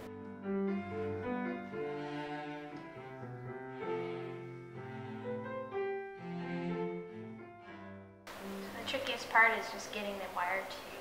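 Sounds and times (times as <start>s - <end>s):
classical strings with cello: 0.7s - 8.9s.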